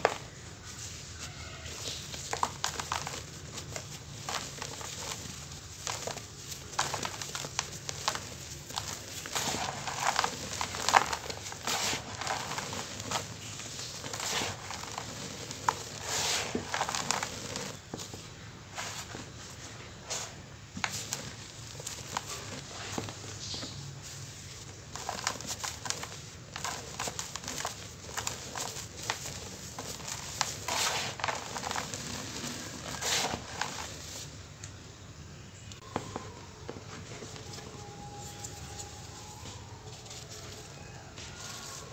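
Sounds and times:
hands crumbling dry cement: 0:01.7 - 0:17.9, 0:24.9 - 0:34.2.

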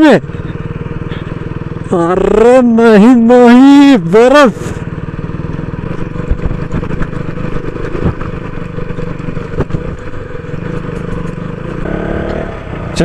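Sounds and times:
motorcycle engine at low revs: 0:00.0 - 0:13.0.

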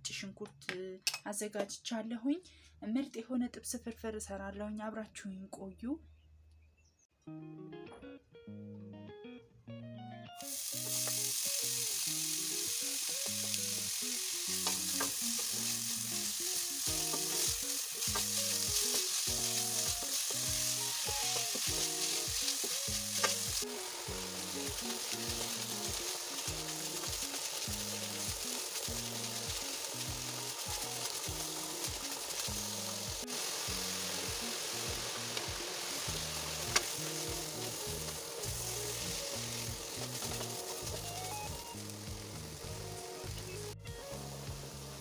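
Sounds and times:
plucked background music: 0:07.3 - 0:45.0
onion sizzling in hot oil: 0:10.4 - 0:45.0.

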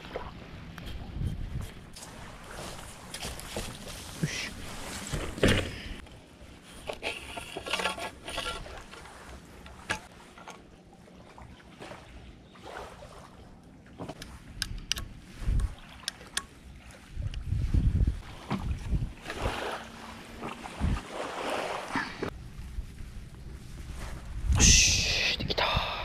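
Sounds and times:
wind buffeting microphone: 0:00.6 - 0:02.0, 0:14.3 - 0:16.0, 0:16.7 - 0:19.7, 0:20.6 - 0:21.2, 0:22.2 - 0:26.0
camp poles clicking and knocking: 0:06.8 - 0:10.6.

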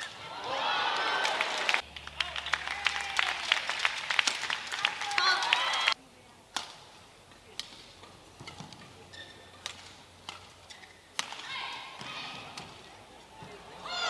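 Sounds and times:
crowd clapping and cheering: 0:00.0 - 0:06.0
voices: 0:00.0 - 0:14.0
rackets striking shuttlecock: 0:06.5 - 0:13.8.

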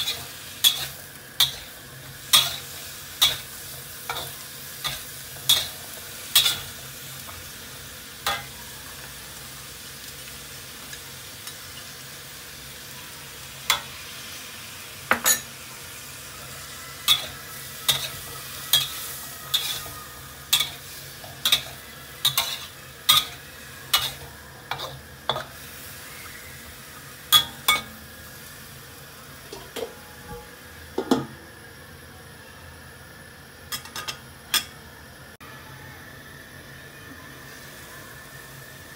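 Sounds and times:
metal spatula scraping a pan: 0:00.0 - 0:06.8, 0:16.6 - 0:26.5
food sizzling in a wok: 0:00.0 - 0:38.9.

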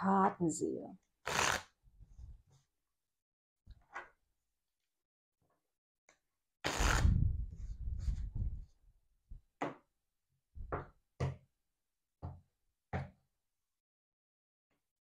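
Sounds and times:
cards being riffle-shuffled: 0:06.7 - 0:07.2.

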